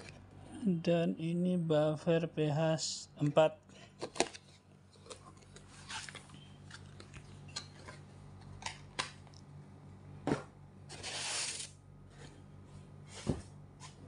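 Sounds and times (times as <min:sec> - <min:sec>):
rustling scrape: 0:10.9 - 0:12.4.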